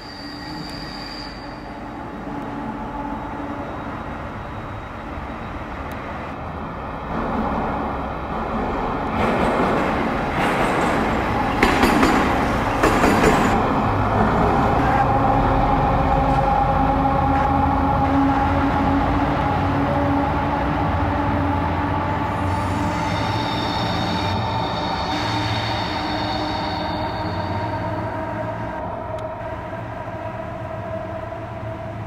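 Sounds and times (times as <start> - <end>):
diesel locomotive engine drone: 0.0 - 32.0
train wheels clanking: 9.2 - 14.6.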